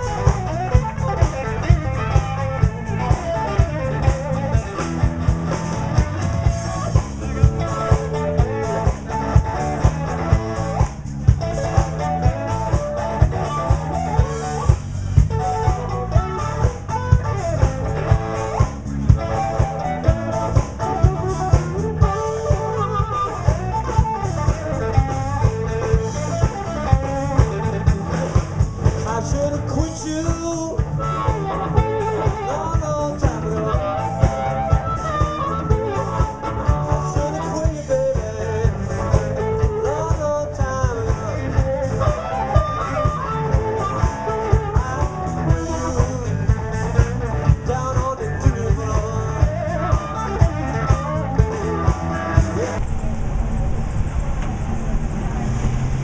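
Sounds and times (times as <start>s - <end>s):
blues band playing: 0.0s - 56.0s
amplified harmonica melody: 11.5s - 28.9s.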